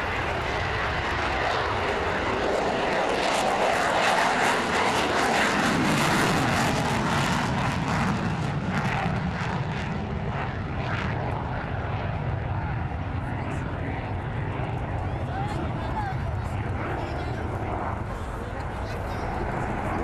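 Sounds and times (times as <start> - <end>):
fighter jet passing low: 0.0 - 20.0.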